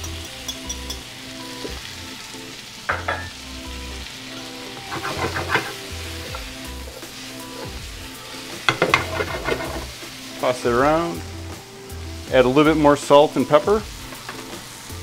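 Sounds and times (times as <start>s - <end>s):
vegetables sizzling in a pan: 0.0s - 15.0s
metal fork scraping a pan: 8.7s - 9.9s.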